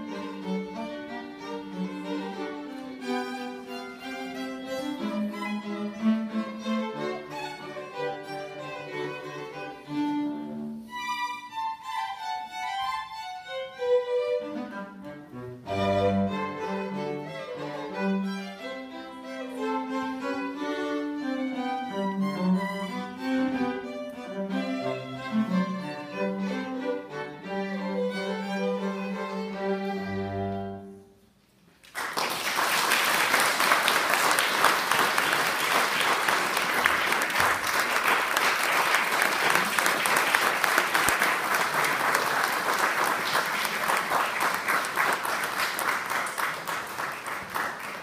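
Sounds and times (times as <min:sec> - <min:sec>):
string trio playing: 0:00.0 - 0:31.8, 0:33.2 - 0:48.0
audience applauding: 0:31.8 - 0:48.0.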